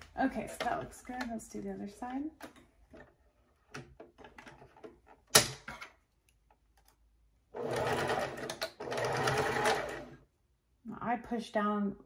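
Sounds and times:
sewing machine stitching: 7.6s - 10.2s.

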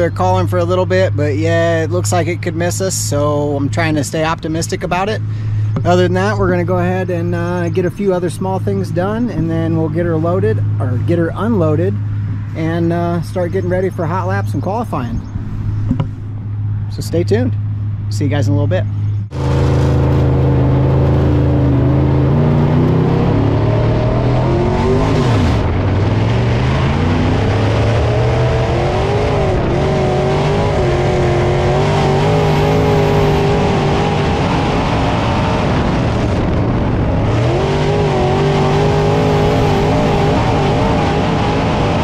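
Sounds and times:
race car engine running hard: 18.9s - 42.0s.

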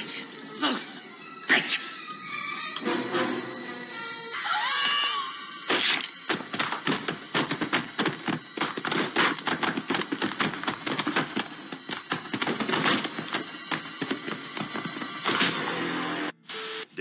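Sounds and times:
body tumbling down wooden stairs: 6.2s - 15.5s.

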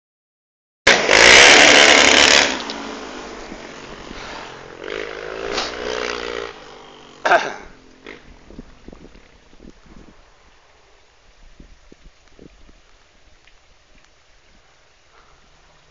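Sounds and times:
vehicle engine revving hard: 0.9s - 8.6s.

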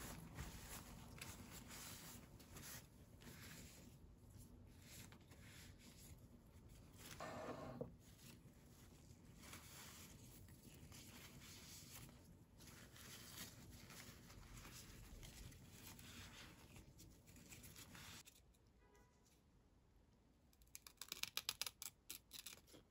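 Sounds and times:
paper towel rubbing leaves: 0.0s - 6.2s, 8.0s - 18.2s.

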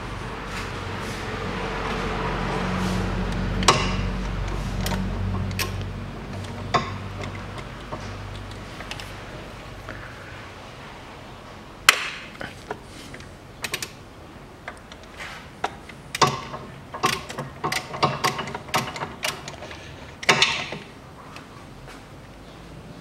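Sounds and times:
metallic rattle: 2.8s - 9.6s, 14.8s - 21.0s.

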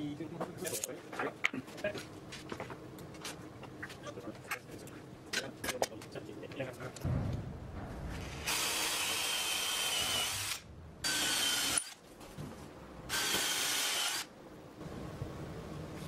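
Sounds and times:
cordless drill whining: 8.5s - 12.0s, 13.1s - 14.3s.

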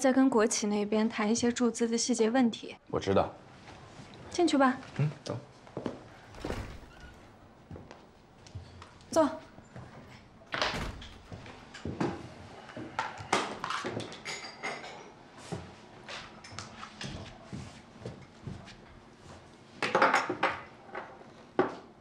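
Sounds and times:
chairs being moved: 5.8s - 12.1s
door shutting: 6.1s - 11.9s.

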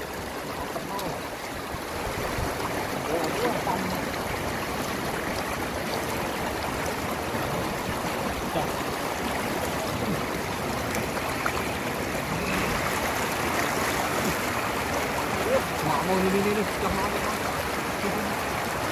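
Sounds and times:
floodwater running over dirt road: 0.0s - 18.9s.

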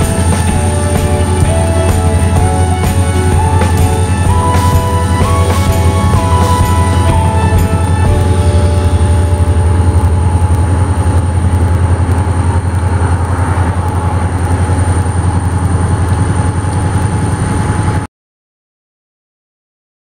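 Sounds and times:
diesel locomotives rumbling: 0.0s - 18.0s.

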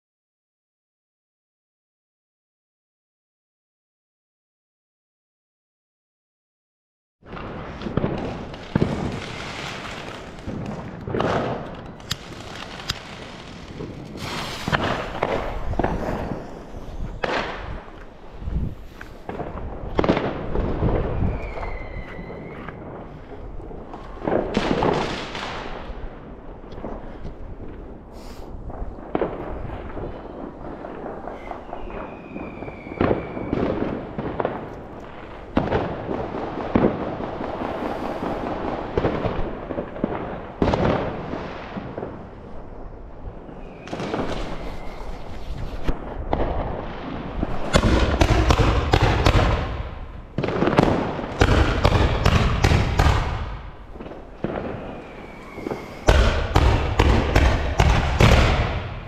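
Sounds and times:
fireworks crackling bangs: 7.2s - 59.0s
firework whistles: 11.9s - 17.3s, 20.9s - 23.0s, 29.5s - 34.0s, 43.5s - 46.0s, 54.6s - 59.0s.

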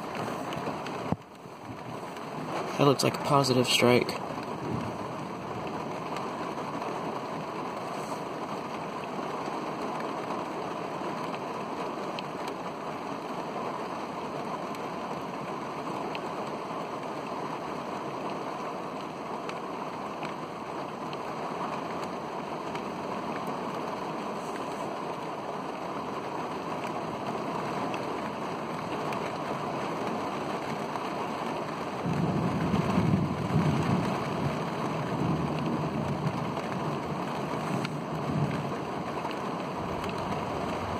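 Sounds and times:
heavy rain: 0.0s - 40.9s
thunder rumbling: 32.0s - 40.9s.

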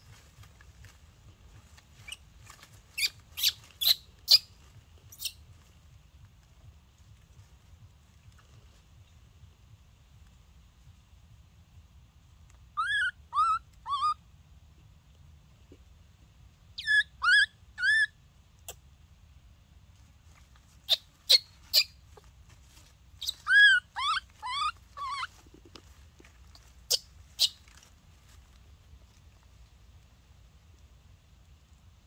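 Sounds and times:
baby monkey high cries: 12.8s - 14.2s, 16.8s - 18.1s, 20.9s - 21.9s, 23.2s - 25.4s.

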